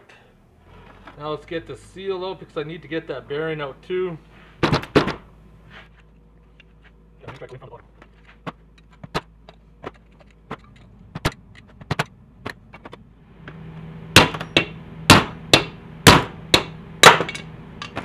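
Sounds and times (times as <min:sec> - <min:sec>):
hammer striking metal: 0:14.2 - 0:18.0.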